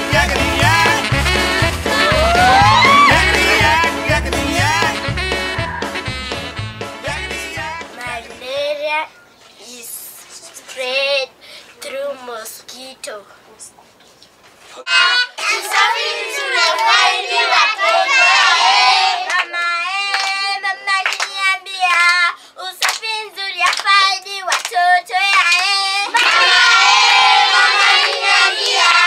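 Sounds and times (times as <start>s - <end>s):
rhythmic hand claps: 0.0s - 5.1s, 16.6s - 17.1s, 17.8s - 29.0s
children singing: 14.9s - 19.6s, 26.0s - 29.0s.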